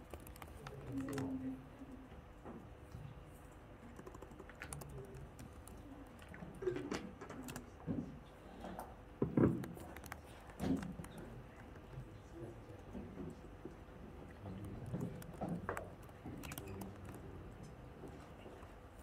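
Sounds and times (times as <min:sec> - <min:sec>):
laptop keyboard typing: 0:00.0 - 0:01.4, 0:03.8 - 0:07.7, 0:14.2 - 0:18.7
faint steady hum: 0:00.0 - 0:19.0.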